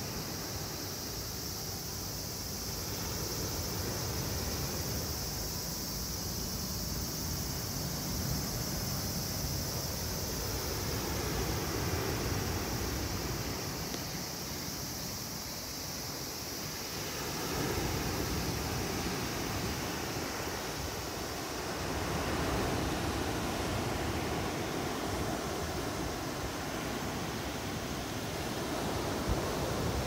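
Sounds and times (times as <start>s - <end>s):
sea waves washing onto sand: 6.6s - 30.0s.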